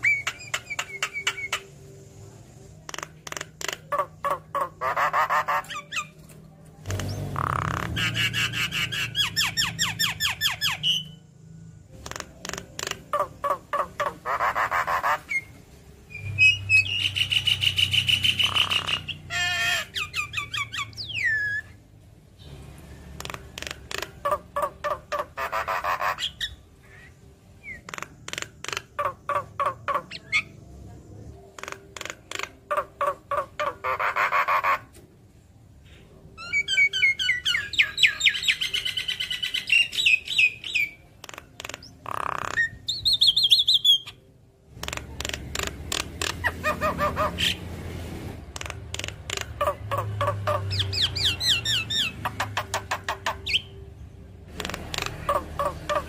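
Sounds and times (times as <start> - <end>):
bird clicking chatter: 2.8 - 4.1, 12.0 - 13.3, 23.2 - 24.3, 27.8 - 29.1, 31.6 - 32.6, 41.2 - 42.7, 44.8 - 46.4, 48.6 - 49.6.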